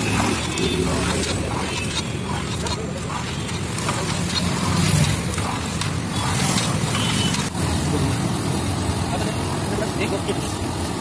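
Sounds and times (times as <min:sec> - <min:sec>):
roadside traffic noise: 0:00.0 - 0:11.0.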